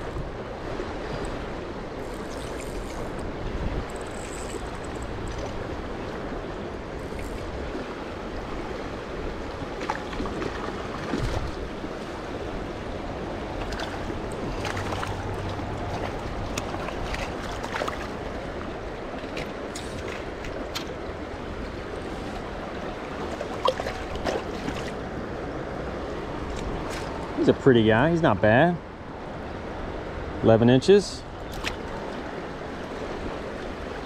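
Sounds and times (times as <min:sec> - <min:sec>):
river rushing over rocks: 0:04.4 - 0:28.3.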